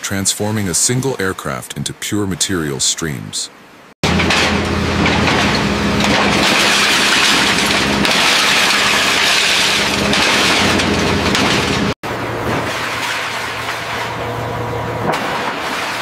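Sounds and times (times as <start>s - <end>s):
steady machine hum: 4.0s - 16.0s.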